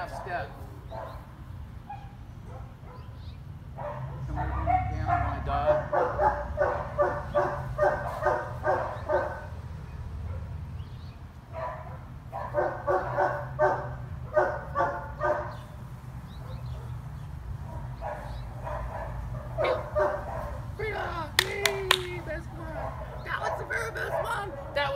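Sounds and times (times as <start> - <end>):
dog barking: 0.2 - 1.3, 1.9 - 3.2, 3.8 - 9.6, 10.2 - 10.6, 11.5 - 15.6, 16.4 - 17.0, 17.6 - 20.7, 22.6 - 24.9.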